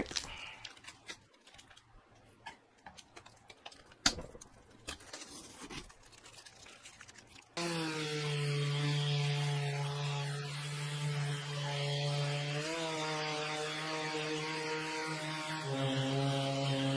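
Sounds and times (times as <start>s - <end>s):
masking tape being peeled: 3.0s - 11.7s
orbital sander humming: 7.6s - 16.9s.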